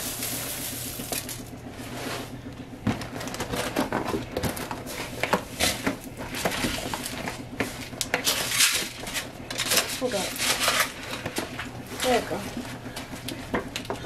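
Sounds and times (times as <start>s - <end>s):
cereal pouring into foil pan: 0.0s - 1.5s.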